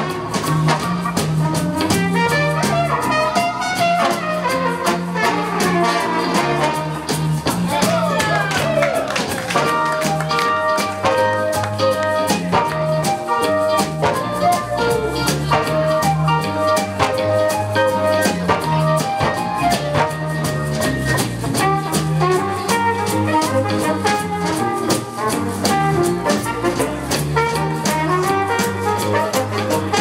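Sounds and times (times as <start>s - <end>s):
saxophones: 0.0s - 7.4s
trombones: 0.0s - 8.0s, 8.9s - 30.0s
trumpets: 0.0s - 20.9s, 21.6s - 30.0s
clipped electric bass notes: 0.0s - 30.0s
drum kit: 0.0s - 30.0s.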